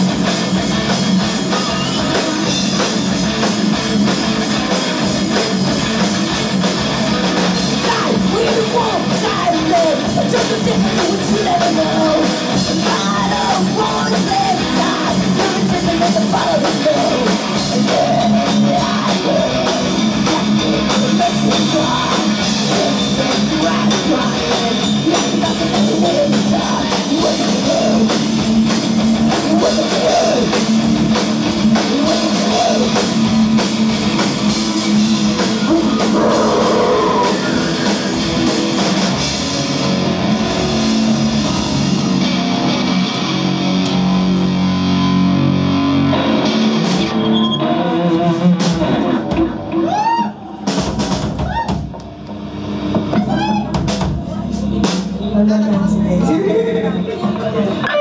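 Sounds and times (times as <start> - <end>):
rock band playing live: 0.0 - 58.0
person singing: 7.8 - 28.2, 35.6 - 38.1.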